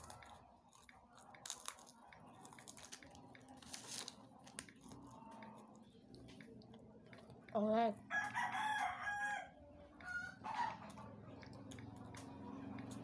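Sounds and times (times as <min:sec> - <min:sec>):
rooster crowing: 0:08.1 - 0:10.8.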